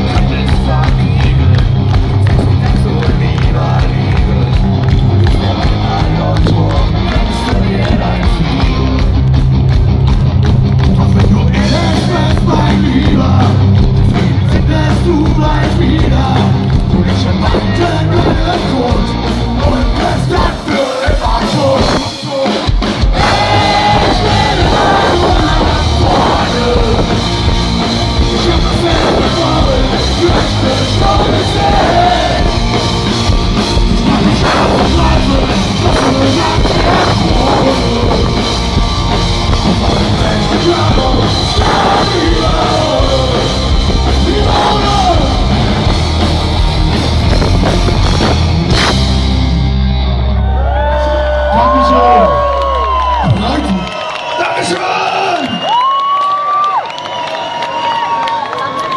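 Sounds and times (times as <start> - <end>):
lead singer singing: 0.0 - 9.2, 10.9 - 46.0
rock band playing live: 0.0 - 53.9.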